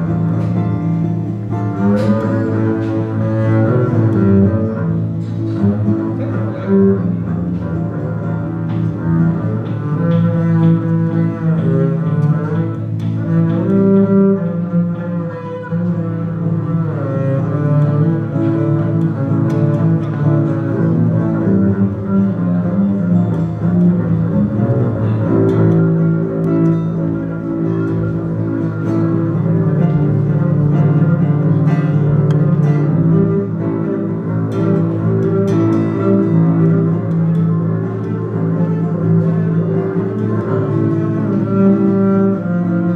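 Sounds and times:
bowed double bass: 0.0s - 42.9s.

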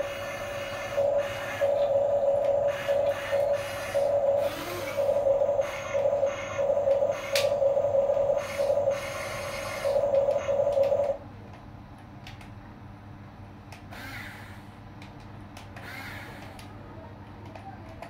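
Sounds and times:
electric gear motors whining: 0.0s - 11.2s, 15.8s - 16.6s.

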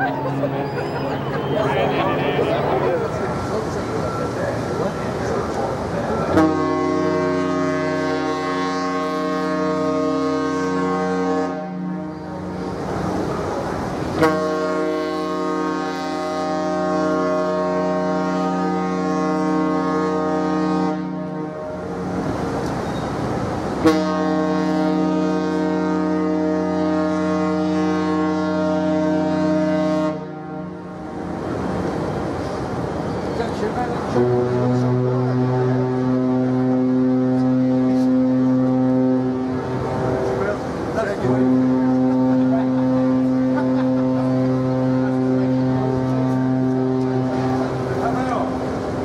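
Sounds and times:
ship horn blast: 0.0s - 4.1s, 6.1s - 49.0s
rushing background noise: 0.0s - 8.1s, 30.8s - 49.0s.

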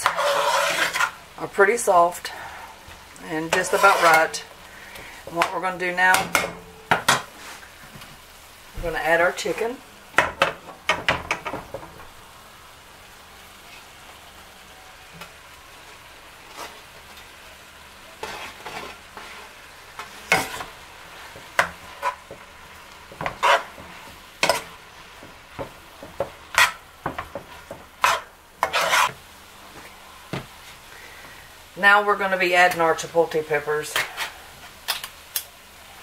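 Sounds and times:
utensil scraping a pan: 0.0s - 1.2s, 3.3s - 7.7s, 16.4s - 16.8s, 18.1s - 22.5s, 23.1s - 29.2s, 33.8s - 34.8s
food sizzling in a frying pan: 0.0s - 36.0s.

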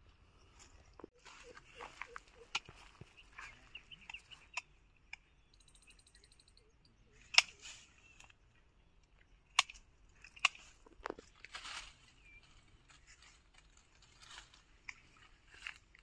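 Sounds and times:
pruning shears snipping branches: 7.2s - 8.4s, 9.5s - 12.0s.

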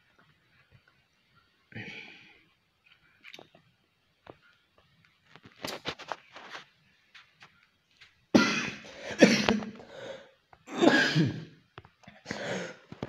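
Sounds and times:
person coughing: 8.4s - 9.8s, 10.7s - 11.5s.

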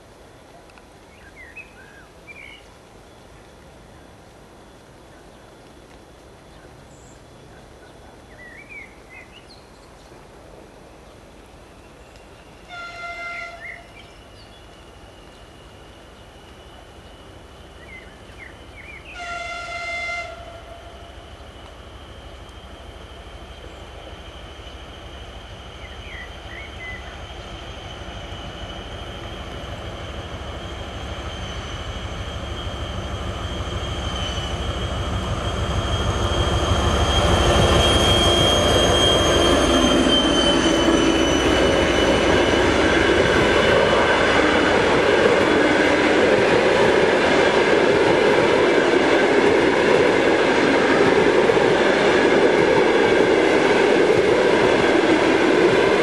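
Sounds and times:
diesel locomotive engine rumble: 13.5s - 56.0s
high whine: 20.5s - 56.0s.

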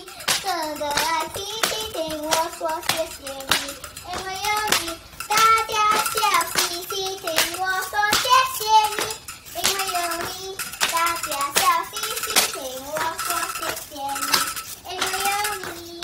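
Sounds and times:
girls singing: 0.0s - 16.0s
sharp clicks and clatters: 0.0s - 16.0s.

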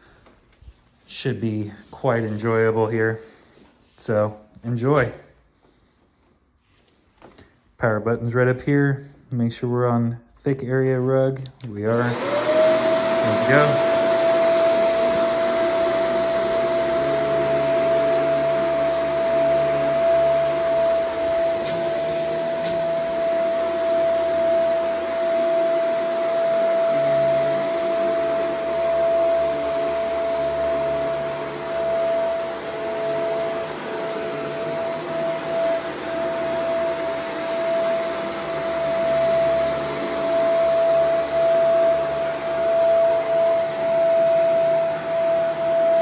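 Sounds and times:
vacuum cleaner motor whining: 10.8s - 46.0s.

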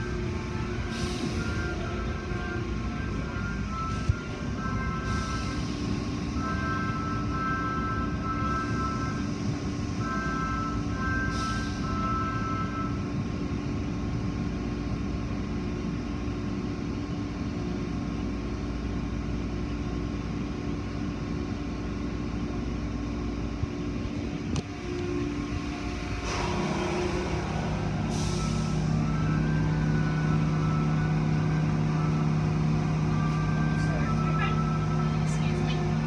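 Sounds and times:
car wash machinery hum: 24.6s - 36.0s.

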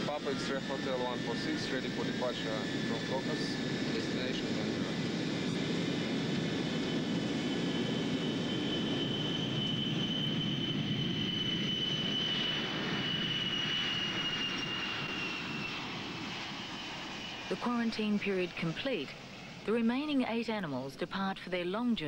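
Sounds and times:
jet engines roaring with whine: 0.0s - 22.0s.

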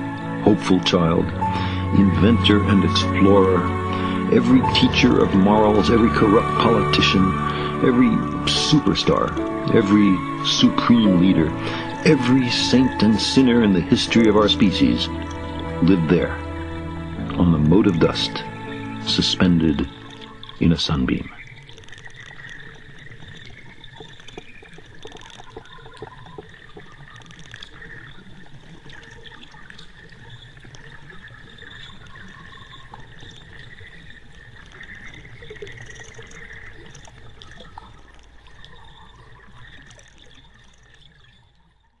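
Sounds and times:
running water: 0.0s - 42.0s.

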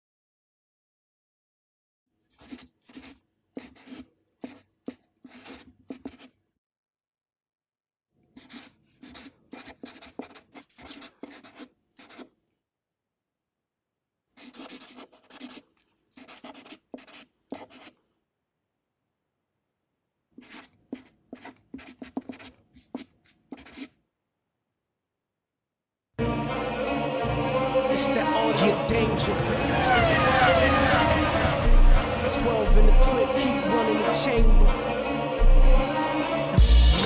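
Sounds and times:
quick scratching strokes: 14.4s - 18.0s.

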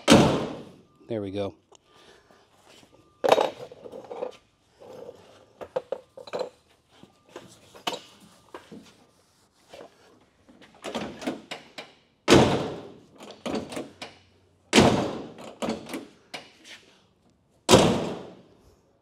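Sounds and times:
car door slamming: 0.0s - 0.7s.

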